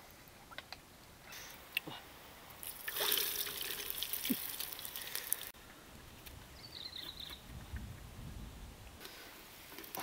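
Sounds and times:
egg trickling: 0:02.6 - 0:05.5.

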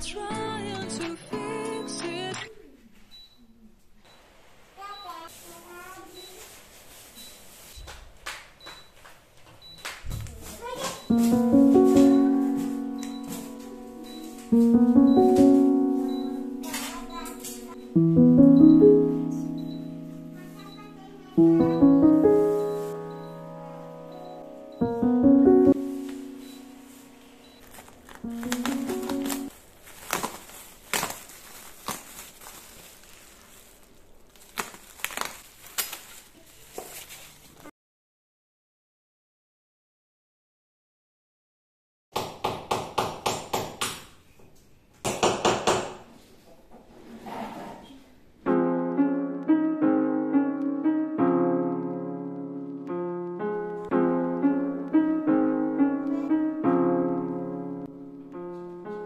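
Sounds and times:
soft piano melody: 0:00.0 - 0:02.3, 0:11.0 - 0:29.8, 0:48.4 - 0:59.0
bubble wrap and plastic crinkling: 0:04.8 - 0:08.3, 0:10.2 - 0:17.9, 0:25.8 - 0:37.7.

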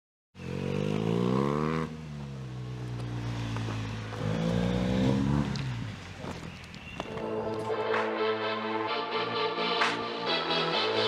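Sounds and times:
motorcycle engine accelerating: 0:00.4 - 0:07.4.

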